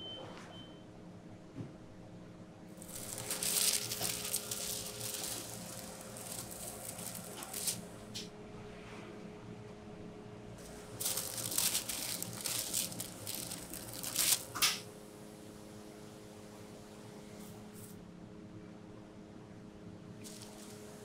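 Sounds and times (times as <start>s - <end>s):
steady low hum: 1.0s - 21.0s
plastic sheet crinkling: 2.8s - 8.0s, 10.6s - 14.8s, 20.2s - 20.8s.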